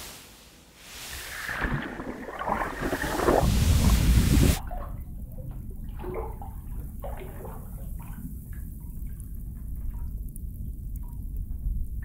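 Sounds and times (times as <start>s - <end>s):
bathwater sloshing in a tub: 1.0s - 10.2s
small splashes and drips: 1.1s - 12.0s.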